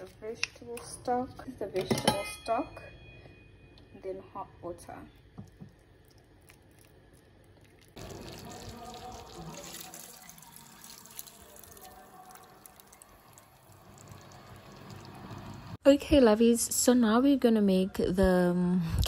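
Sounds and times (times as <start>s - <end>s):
liquid pouring and splashing into pot: 5.4s - 15.8s
water trickling into bowl: 5.4s - 15.8s.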